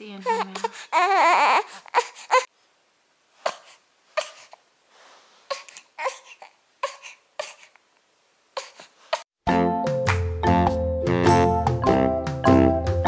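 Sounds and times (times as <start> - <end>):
infant fussing cries: 0.2 - 2.5, 5.5 - 7.8.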